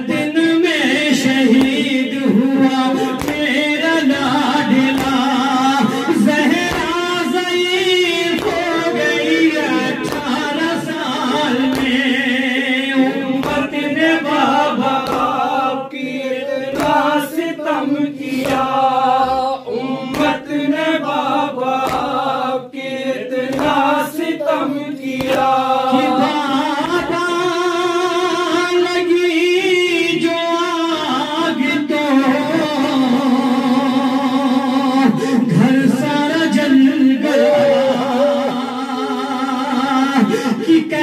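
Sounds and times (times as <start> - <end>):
men chanting a lament: 0.0 - 41.0
chest-beating slaps: 1.2 - 2.0, 3.0 - 7.2, 8.2 - 9.1, 9.9 - 12.2, 13.1 - 15.6, 16.7 - 17.2, 18.2 - 18.9, 20.0 - 20.6, 21.6 - 22.3, 23.4 - 24.0, 25.0 - 27.2.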